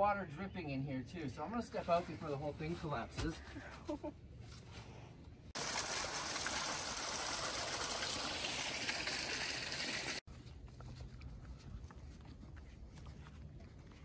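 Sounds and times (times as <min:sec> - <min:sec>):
running water rushing: 0:05.6 - 0:10.2.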